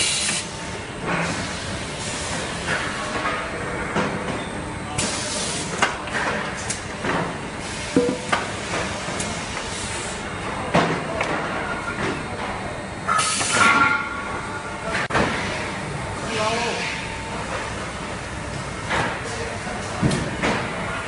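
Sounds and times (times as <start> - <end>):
knocks and clanks: 8.0 - 8.5.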